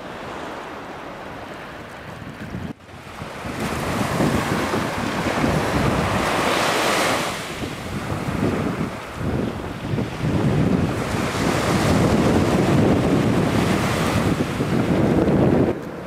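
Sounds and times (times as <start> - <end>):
small sea waves: 0.0 - 16.0
wind buffeting microphone: 1.2 - 16.0.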